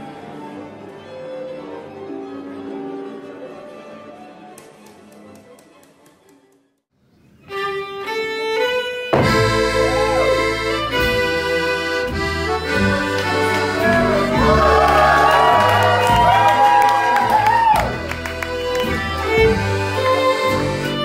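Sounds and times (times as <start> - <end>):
accordion folk music: 7.5 - 16.3, 17.2 - 21.0.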